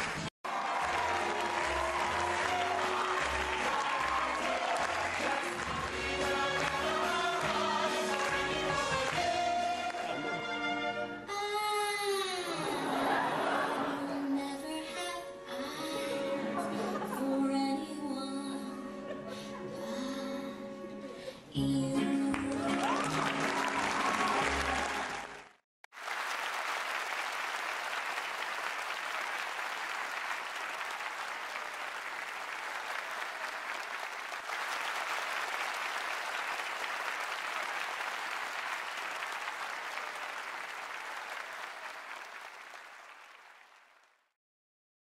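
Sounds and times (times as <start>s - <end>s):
audience applauding: 0.0s - 10.5s, 22.3s - 44.3s
music with singing: 2.0s - 10.7s, 14.1s - 24.8s.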